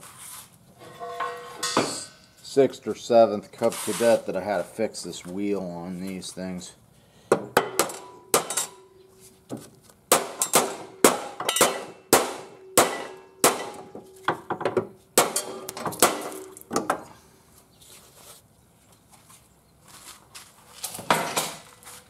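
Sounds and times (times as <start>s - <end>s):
hammer striking metal deck: 1.0s - 2.2s, 7.4s - 8.9s, 10.1s - 17.0s.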